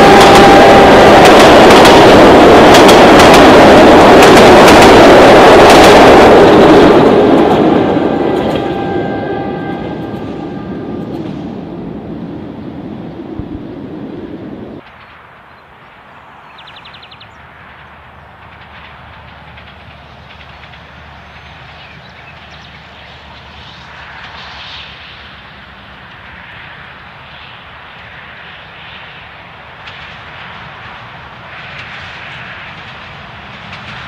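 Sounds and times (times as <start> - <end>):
locomotive diesel engine droning: 0.0 - 14.8
loud low rumble: 6.2 - 14.8.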